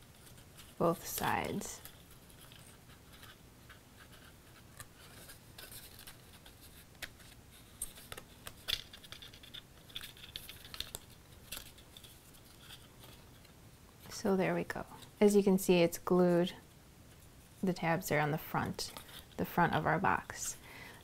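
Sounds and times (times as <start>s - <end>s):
cardstock scratching and rustling: 0.0s - 13.6s, 18.7s - 20.6s.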